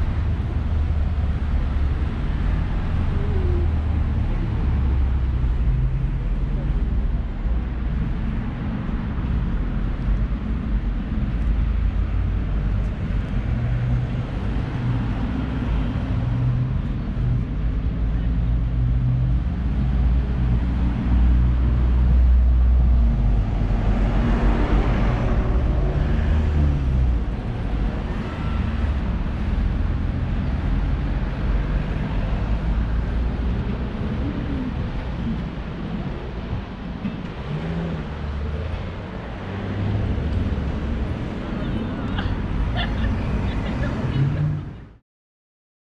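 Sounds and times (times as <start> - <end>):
bus passing: 0.0 - 45.0
low traffic rumble: 0.0 - 45.0
vehicle engines humming: 0.0 - 45.0.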